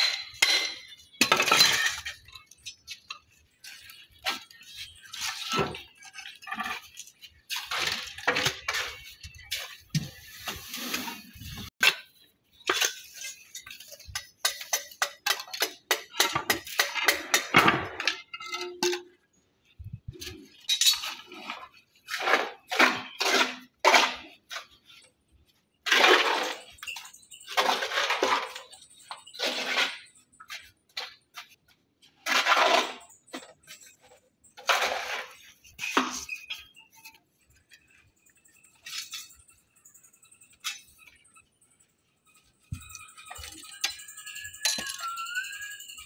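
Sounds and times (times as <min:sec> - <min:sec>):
trowel clinking on stone: 0:00.0 - 0:19.2, 0:42.6 - 0:46.0.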